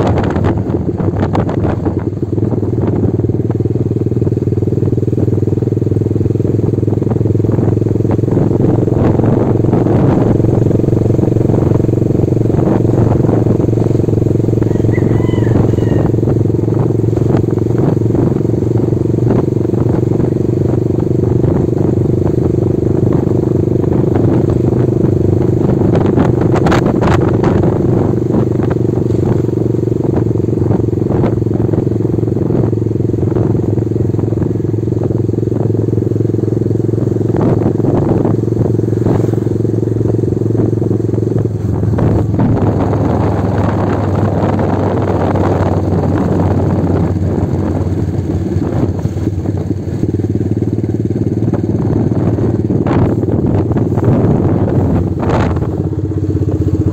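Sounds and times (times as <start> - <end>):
small motorcycle engine running: 0.0 - 56.9.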